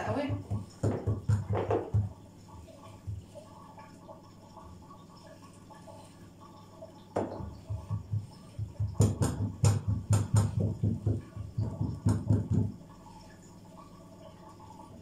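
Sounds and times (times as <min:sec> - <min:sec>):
hands patting dough: 0:00.0 - 0:02.2, 0:07.2 - 0:12.7.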